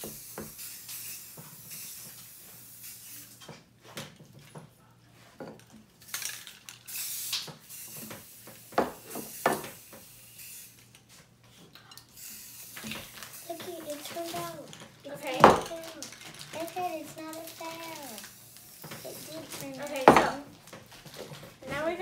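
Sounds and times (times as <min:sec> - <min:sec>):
aerosol spray can hissing: 0:00.0 - 0:03.4, 0:06.9 - 0:10.8, 0:12.2 - 0:14.4.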